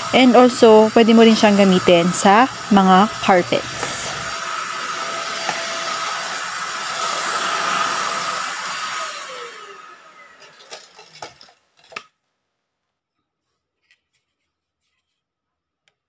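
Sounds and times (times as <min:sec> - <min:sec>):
vacuum cleaner whining: 0:00.0 - 0:11.5.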